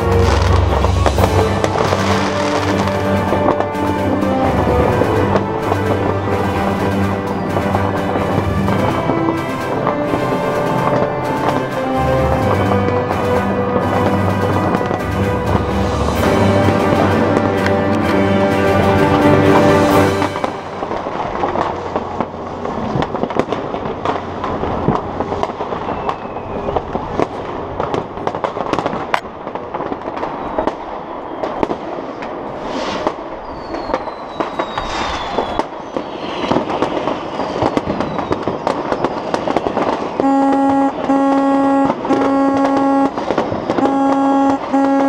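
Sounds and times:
whistling rockets: 0.0 - 17.5, 19.9 - 45.0
fireworks crackling and banging: 0.0 - 45.0
horn short low blasts: 40.2 - 45.0.

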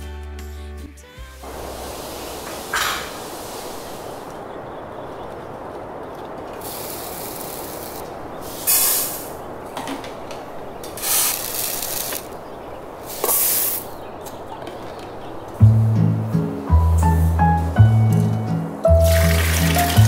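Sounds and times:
rice grains pouring: 19.0 - 20.0.

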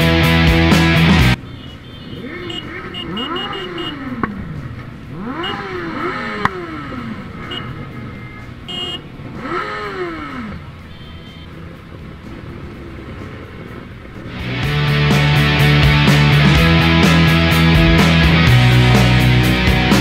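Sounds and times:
motorcycle engines revving: 0.0 - 20.0.

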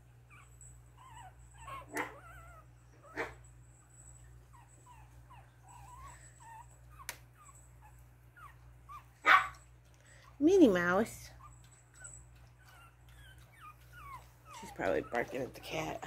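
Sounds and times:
puppies squeaking and whimpering: 0.3 - 3.3, 4.5 - 9.2, 11.2 - 16.0.

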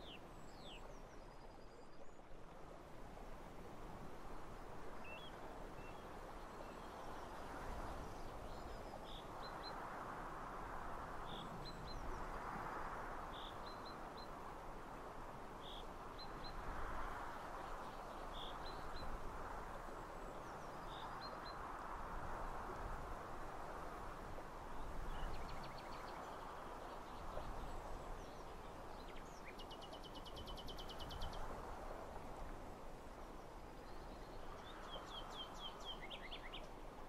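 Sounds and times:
wind rustling through trees: 0.0 - 37.0.

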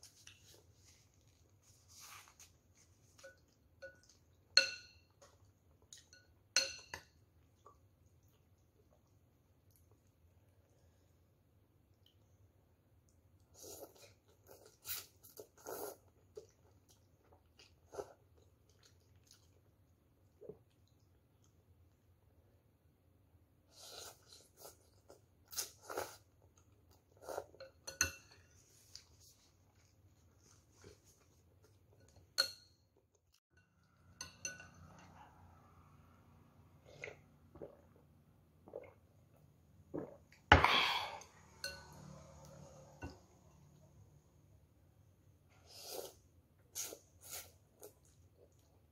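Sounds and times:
person slurping and chewing noodles: 13.4 - 19.7, 23.7 - 27.8, 36.8 - 43.0, 45.5 - 48.9.

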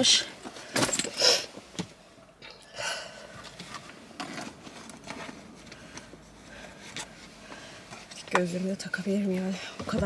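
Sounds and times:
items clicking and clinking: 0.7 - 1.2.

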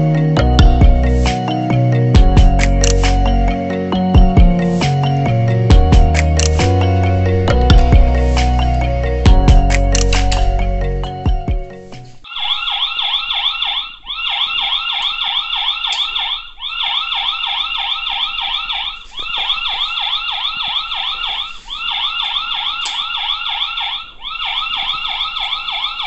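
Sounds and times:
electronic warbling siren: 12.3 - 26.0.

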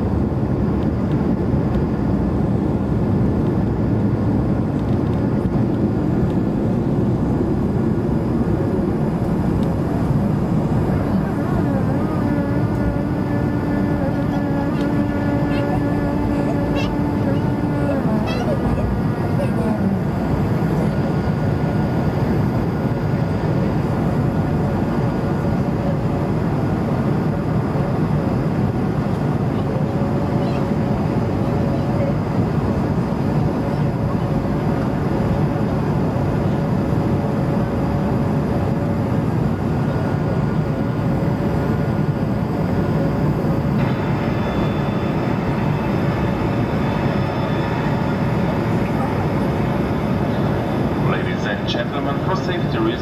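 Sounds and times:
airplane cabin engine rush: 0.0 - 53.0
wavering engine tone: 6.9 - 26.2, 39.8 - 53.0.

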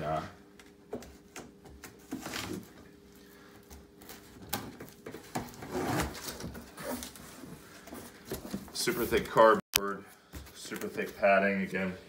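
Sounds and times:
cardboard flaps scraping and rustling: 1.8 - 2.9, 4.0 - 9.2.

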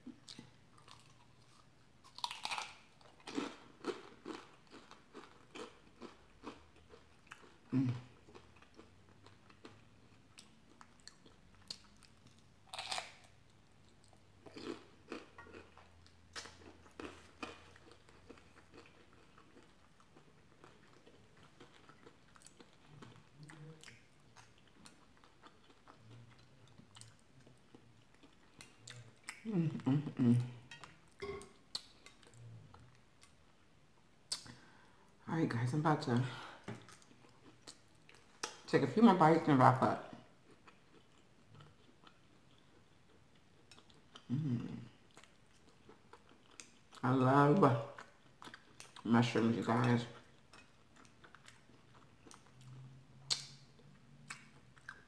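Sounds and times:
crunching fried food: 0.4 - 29.4
wet chewing clicks: 50.5 - 55.0.

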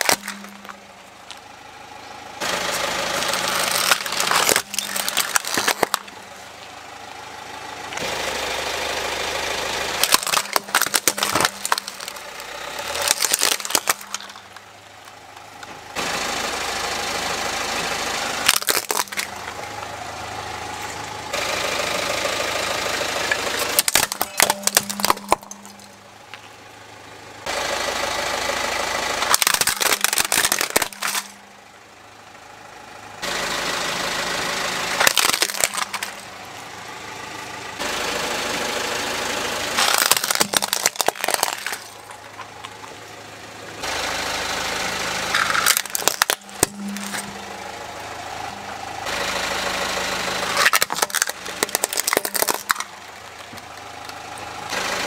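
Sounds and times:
plastic toys cracking under tyre: 0.0 - 1.4, 3.2 - 6.2, 10.0 - 15.7, 18.4 - 19.6, 23.3 - 26.0, 29.2 - 31.4, 35.0 - 36.3, 39.8 - 43.1, 45.3 - 47.3, 50.5 - 54.5
car engine running: 0.0 - 55.0.

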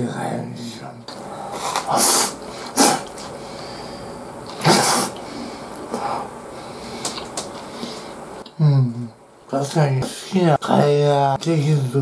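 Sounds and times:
man slurping food: 1.5 - 3.3, 4.5 - 5.3
mouth sounds: 1.5 - 3.4, 4.4 - 6.4.

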